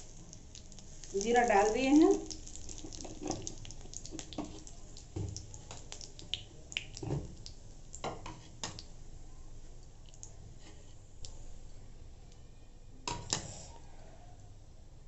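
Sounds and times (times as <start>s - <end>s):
seeds crackling in hot oil: 0.0s - 11.4s
faint oil sizzle: 0.0s - 11.8s.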